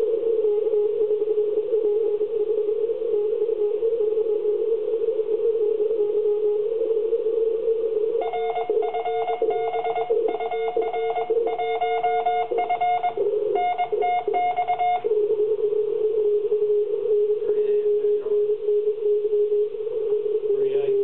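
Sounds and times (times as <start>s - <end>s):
radio receiver hum: 0.0s - 21.0s
morse code beeping: 8.2s - 15.3s.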